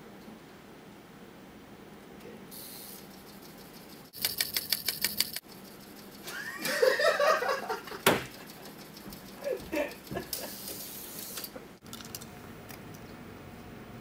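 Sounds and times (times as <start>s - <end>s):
computer keys clattering: 3.0s - 6.3s, 7.8s - 10.7s
man laughing: 6.2s - 8.1s, 9.4s - 10.6s.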